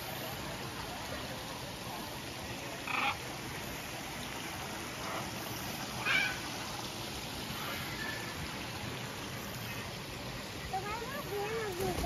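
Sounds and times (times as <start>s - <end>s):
background hiss: 0.0s - 12.0s
parrots squawking: 2.8s - 3.2s, 6.0s - 6.4s.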